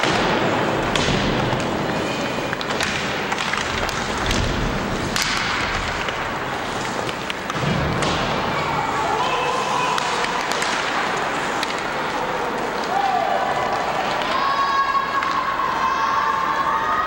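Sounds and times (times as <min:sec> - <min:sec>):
hockey sticks and puck clacking: 0:00.0 - 0:16.7
skates hissing on ice: 0:05.8 - 0:07.6.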